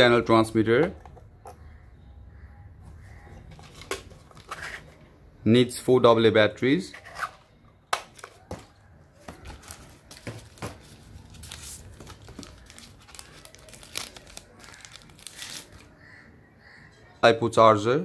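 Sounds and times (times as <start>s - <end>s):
plastic bag crinkling: 9.3s - 15.9s.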